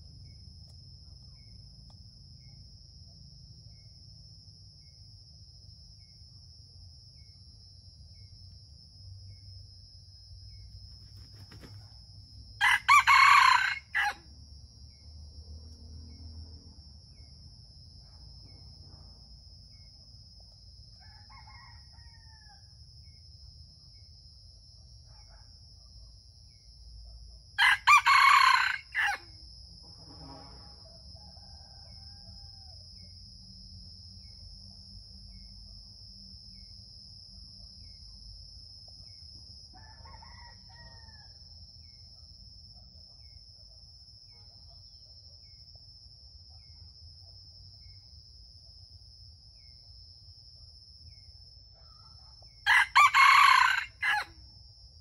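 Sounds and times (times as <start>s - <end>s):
high insect drone: 0.0s - 55.0s
faint rooster calls: 12.6s - 14.3s, 20.9s - 22.8s, 27.6s - 29.4s, 30.2s - 32.9s, 39.8s - 41.6s, 51.8s - 54.4s
rooster crowing: 12.6s - 14.3s, 21.0s - 22.7s, 27.6s - 29.4s, 30.2s - 32.8s, 39.8s - 41.5s, 52.6s - 54.4s.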